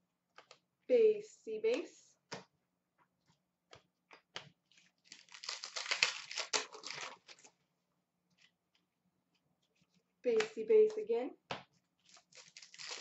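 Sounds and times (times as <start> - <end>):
wrapper tearing and crinkling: 4.7 - 7.5, 12.0 - 13.0.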